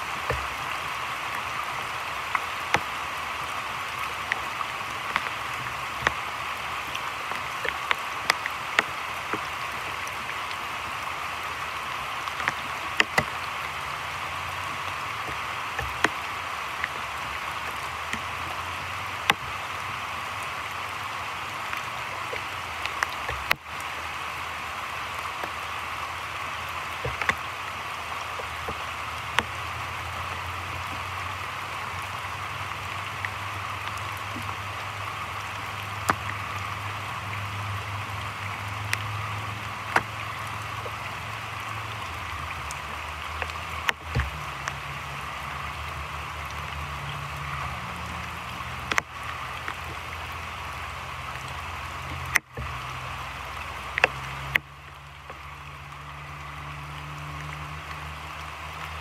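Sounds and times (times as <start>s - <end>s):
heavy rain on creek and foliage: 0.0s - 59.0s
raindrops tapping close by: 0.0s - 59.0s.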